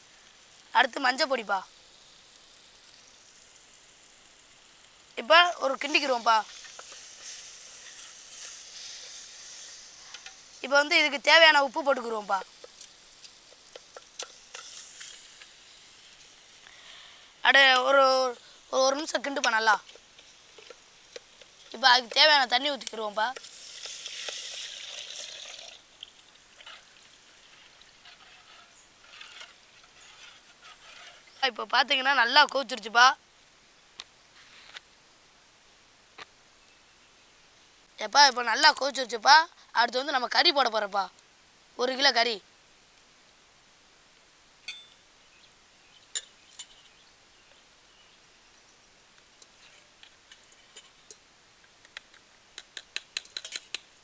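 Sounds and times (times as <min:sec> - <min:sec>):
water sizzling in hot pan: 0:00.0 - 0:34.7, 0:37.9 - 0:54.0
faint crackles: 0:00.0 - 0:36.9, 0:37.8 - 0:54.0
metal clinks of cooking pot: 0:44.7 - 0:45.0.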